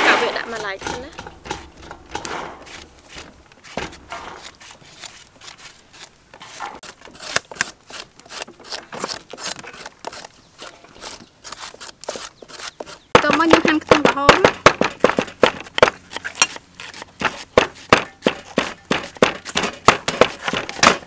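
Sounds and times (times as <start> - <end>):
knife scraping vegetable: 0.2 - 13.2, 15.9 - 21.0.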